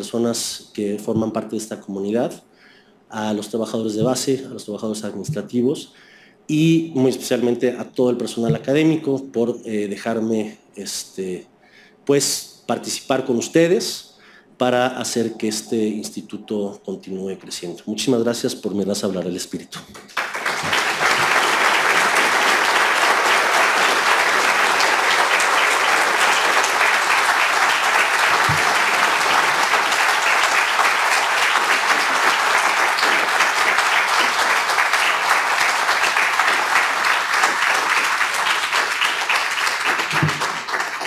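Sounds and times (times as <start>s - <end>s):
audience applauding: 20.0s - 41.0s.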